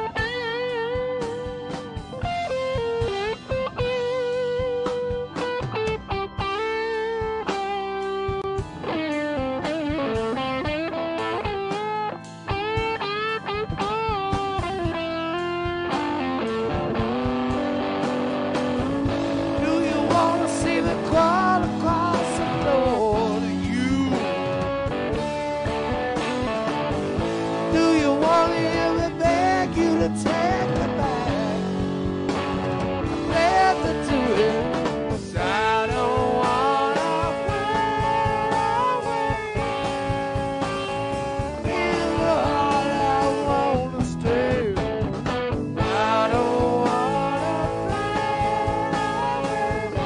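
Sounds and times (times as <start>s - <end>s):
blues rock band playing: 0.0s - 50.0s
electric guitar lead line: 0.0s - 50.0s
man singing: 19.0s - 24.8s, 27.6s - 31.8s, 33.2s - 39.8s, 41.5s - 45.2s, 45.8s - 50.0s.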